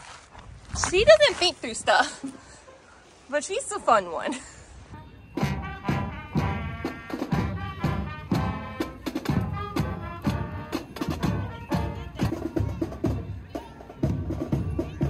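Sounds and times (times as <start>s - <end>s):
brass instruments playing: 5.4s - 15.0s
steady drum beat: 5.4s - 15.0s.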